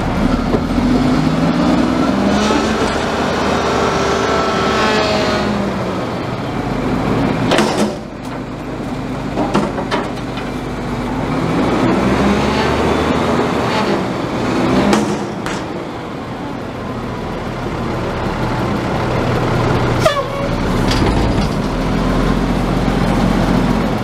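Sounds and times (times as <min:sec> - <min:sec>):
garbage truck diesel engine revving: 0:00.0 - 0:24.0
sharp metallic bangs: 0:07.4 - 0:08.3
metal clanks: 0:09.3 - 0:10.6.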